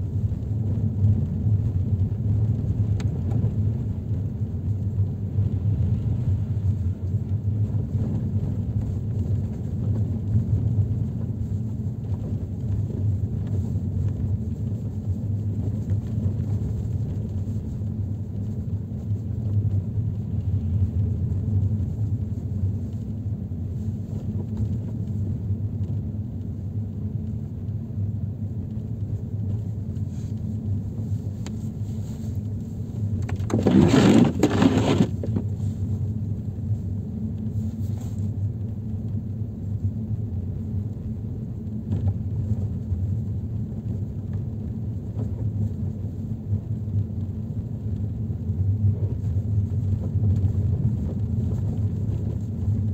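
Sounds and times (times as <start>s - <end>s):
vehicle rumble on snowy road: 0.0s - 52.9s
rushing scraping noise: 33.3s - 35.4s.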